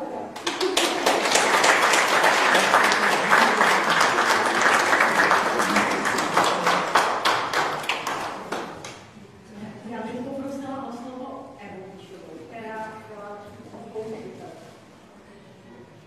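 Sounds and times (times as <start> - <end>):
audience applauding: 0.4 - 9.0.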